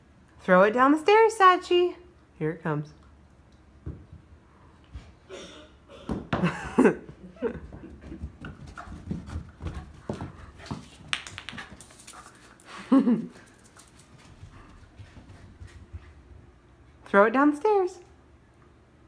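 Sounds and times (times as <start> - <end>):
dog panting: 11.6 - 16.3.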